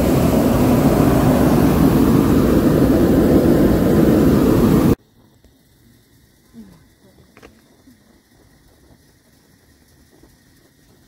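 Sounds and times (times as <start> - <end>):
propane burner blast: 0.0 - 5.0.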